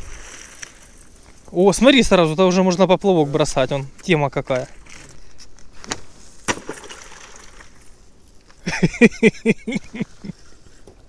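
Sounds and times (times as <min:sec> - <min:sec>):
ice cracking: 0:05.9 - 0:08.0.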